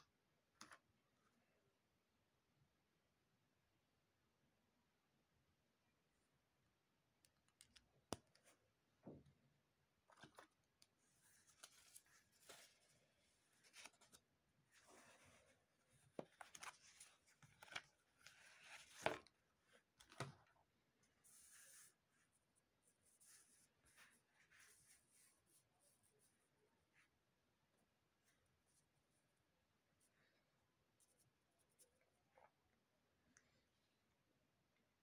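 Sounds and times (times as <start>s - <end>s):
small taps and clicks: 7.2s - 9.3s
paper rustling and sliding: 11.2s - 15.6s.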